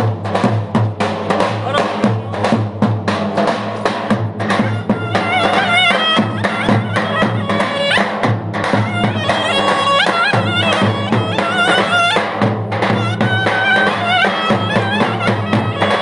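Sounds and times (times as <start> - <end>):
bass drum beat: 0.0 - 16.0
clarinet folk dance tune: 4.5 - 16.0.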